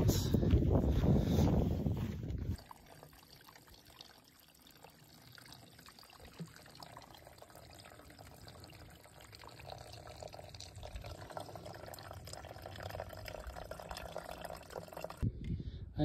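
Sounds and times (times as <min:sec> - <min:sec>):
water trickling into pool: 0:02.5 - 0:15.2.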